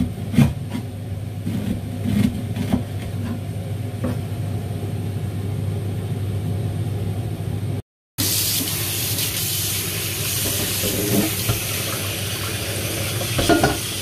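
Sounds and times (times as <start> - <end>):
running tap water: 8.2 - 14.0.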